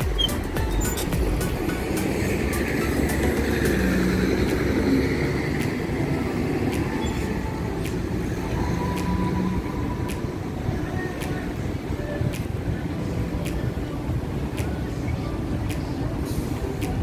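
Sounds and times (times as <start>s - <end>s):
city street traffic rumble: 0.0s - 17.0s
faint high tick: 13.4s - 13.8s.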